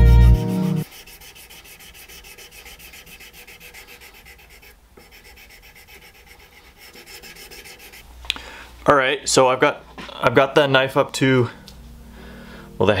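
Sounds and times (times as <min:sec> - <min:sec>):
background music: 0:00.0 - 0:00.8
sandpaper rasping on wood: 0:00.8 - 0:08.0.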